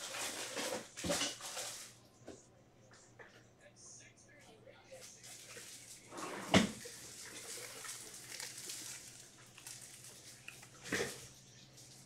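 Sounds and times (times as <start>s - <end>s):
trading cards rustling and ticking: 6.8s - 12.0s.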